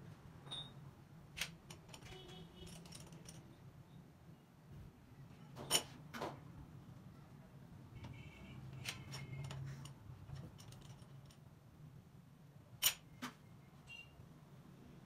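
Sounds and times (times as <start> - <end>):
metal-on-metal clicks: 1.4 - 3.5, 12.8 - 13.1.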